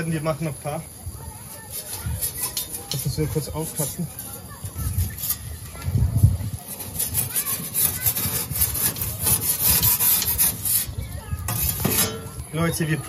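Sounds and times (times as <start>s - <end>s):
utensil rasping on crusty surface: 1.5s - 12.4s.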